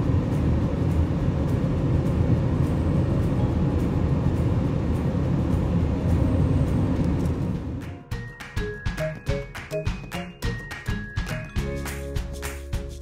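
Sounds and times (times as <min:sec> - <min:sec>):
car cabin road rumble: 0:00.0 - 0:07.8.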